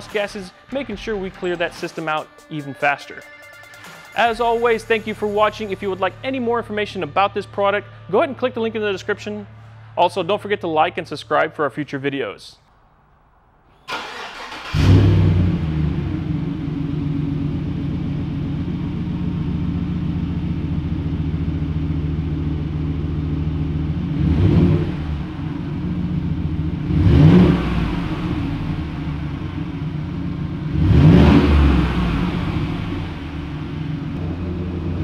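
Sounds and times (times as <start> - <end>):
truck engine idling: 13.9 - 24.2, 24.8 - 30.8, 31.5 - 35.0
engine revving: 13.9 - 35.0.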